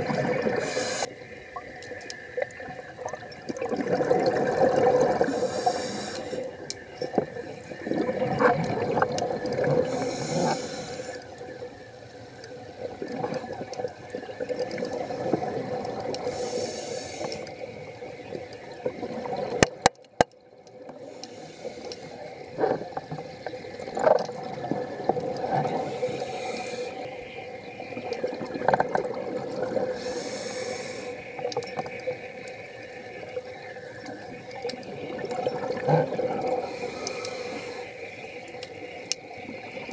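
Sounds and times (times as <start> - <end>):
exhaled bubbles gurgling: 0.0 - 39.9
diver breathing through regulator: 0.6 - 1.1, 5.2 - 6.5, 9.8 - 11.2, 16.2 - 17.6, 21.0 - 22.3, 25.7 - 27.0, 29.9 - 31.3, 36.5 - 38.4.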